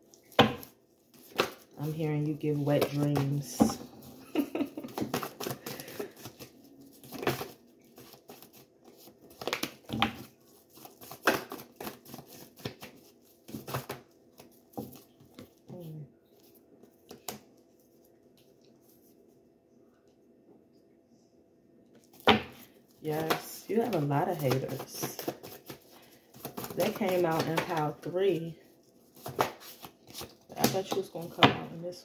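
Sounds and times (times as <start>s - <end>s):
cards being shuffled: 0.1s - 15.7s, 22.1s - 28.4s, 29.1s - 31.8s.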